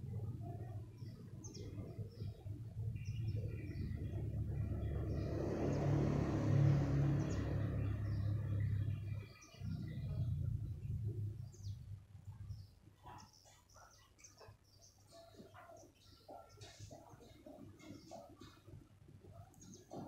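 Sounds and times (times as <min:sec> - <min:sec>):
vehicle passing rumble: 0:00.0 - 0:12.7
birds chirping: 0:00.0 - 0:20.0.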